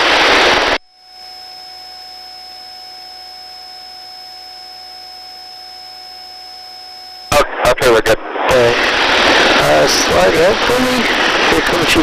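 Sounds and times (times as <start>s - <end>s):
faint whine tones: 0.0s - 12.0s
steady hiss: 0.0s - 12.0s.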